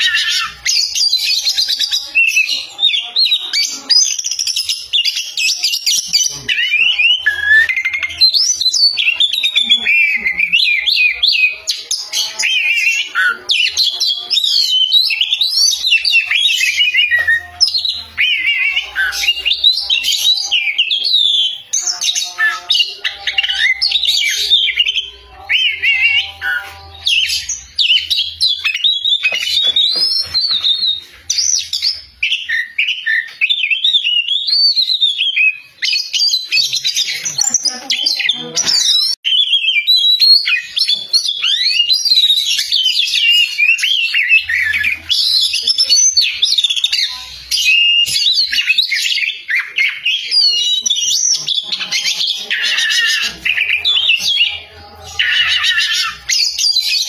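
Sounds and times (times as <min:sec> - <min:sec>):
bird singing whistles and trills: 0:00.0 - 0:57.0.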